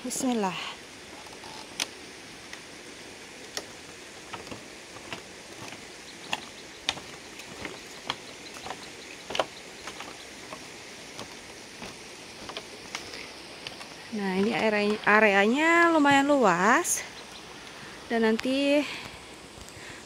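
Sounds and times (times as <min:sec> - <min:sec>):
steady background hiss: 0:00.0 - 0:20.0
bamboo slats clicking and creaking: 0:01.1 - 0:02.6, 0:03.4 - 0:15.2.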